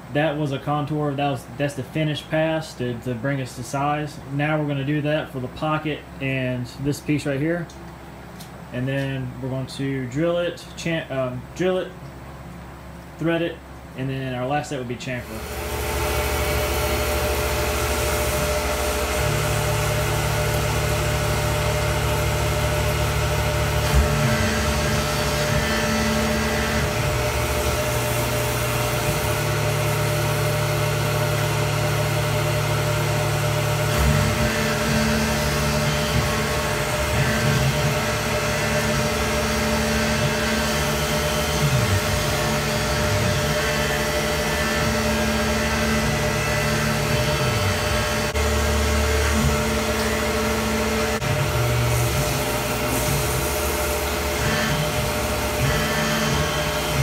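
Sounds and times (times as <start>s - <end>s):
milling machine cutting metal: 15.2s - 57.0s.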